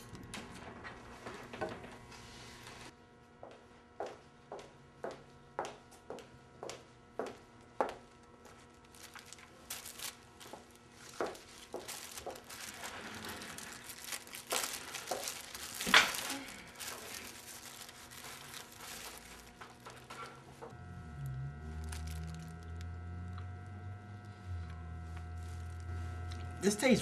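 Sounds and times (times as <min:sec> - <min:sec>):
low steady hum: 0:06.9 - 0:27.0
plastic bag crinkling: 0:08.6 - 0:20.3, 0:21.7 - 0:22.8.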